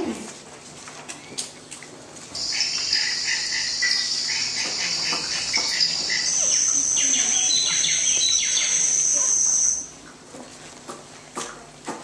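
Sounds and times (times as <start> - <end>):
birds chirping: 2.4 - 9.9.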